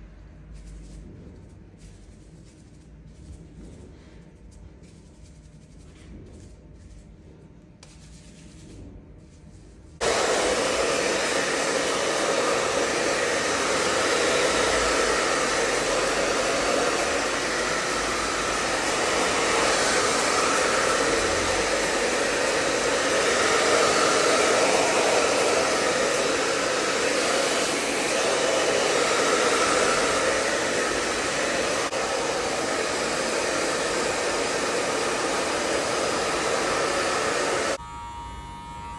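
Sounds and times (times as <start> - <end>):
hair dryer blowing: 10.0 - 38.9.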